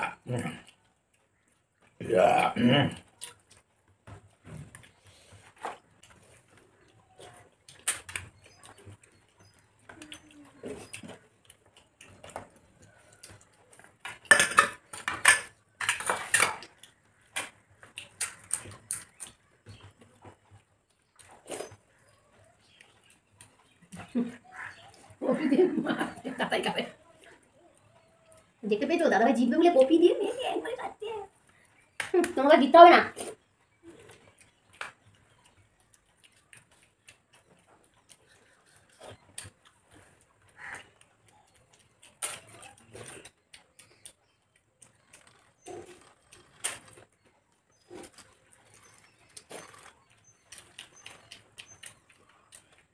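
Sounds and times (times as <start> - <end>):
wet chewing and lip smacks: 2.9 - 25.2, 33.2 - 52.9.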